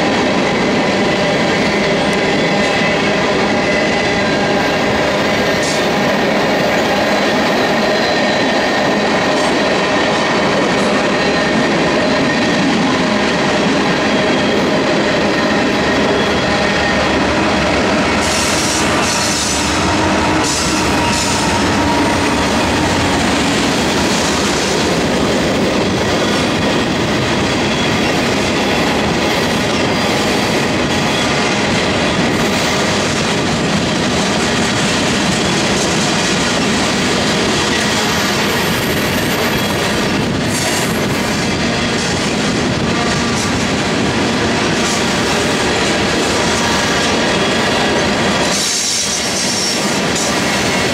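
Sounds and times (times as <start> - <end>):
freight train wheels rumbling on rails: 0.0 - 50.9
high wheel squeals: 13.2 - 25.2.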